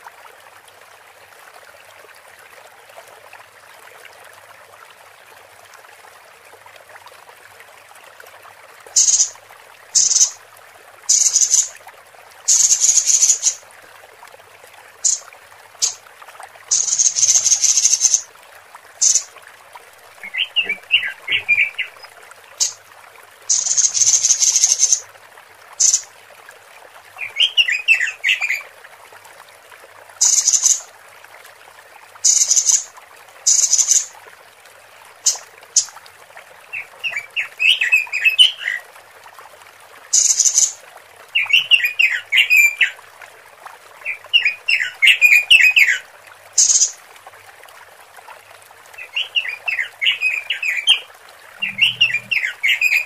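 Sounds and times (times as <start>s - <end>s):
bird chirping: 9.0s - 9.3s, 10.0s - 10.4s, 12.5s - 13.6s, 15.0s - 15.2s, 16.7s - 18.2s, 19.0s - 19.3s, 20.2s - 22.8s, 23.5s - 25.0s, 51.6s - 53.0s
harsh hissing bird rasps: 9.0s - 9.3s, 10.0s - 10.4s, 11.1s - 11.7s, 12.5s - 13.6s, 16.7s - 18.2s, 19.0s - 19.2s, 23.5s - 25.0s, 33.5s - 34.1s, 40.2s - 40.7s, 46.6s - 46.9s, 51.6s - 53.0s.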